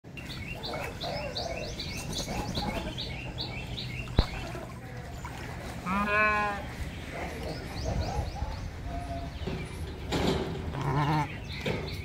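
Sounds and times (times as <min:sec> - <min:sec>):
small birds chirping: 0:00.1 - 0:05.8, 0:06.6 - 0:12.0
farm animal call: 0:00.5 - 0:04.9, 0:05.8 - 0:09.6, 0:10.6 - 0:11.6.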